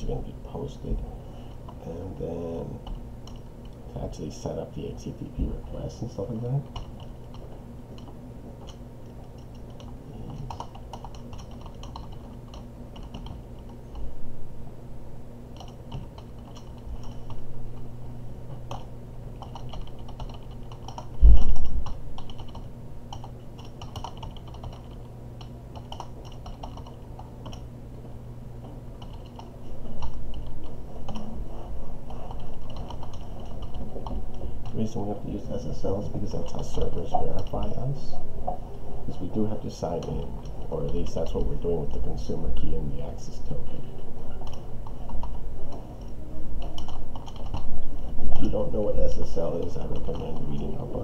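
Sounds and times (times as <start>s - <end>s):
steady low hum: 0.0s - 51.0s
typing on a computer keyboard: 6.6s - 7.4s, 8.0s - 14.0s, 15.6s - 17.4s, 18.7s - 21.2s, 21.8s - 27.7s, 29.0s - 30.5s, 32.3s - 34.9s, 46.6s - 47.7s, 49.6s - 50.6s
loud low thump: 21.2s - 21.8s.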